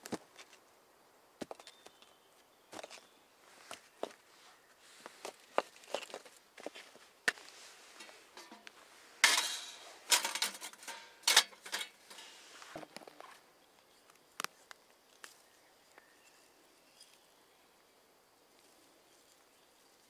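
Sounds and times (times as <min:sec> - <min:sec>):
sheet metal stove clanking: 0:08.0 - 0:12.4.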